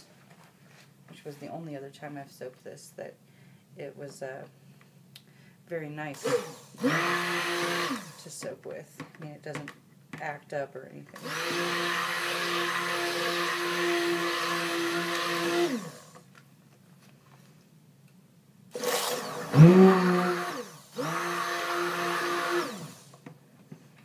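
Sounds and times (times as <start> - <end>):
stick blender whirring: 6.2 - 8.3, 11.2 - 16.3, 18.7 - 23.3.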